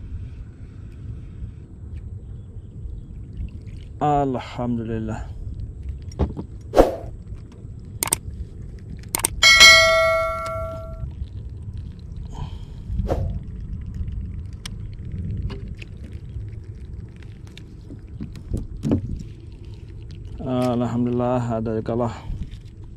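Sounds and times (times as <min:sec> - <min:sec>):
low steady rumble: 0:00.0 - 0:22.9
ringing metallic clang: 0:09.2 - 0:11.0.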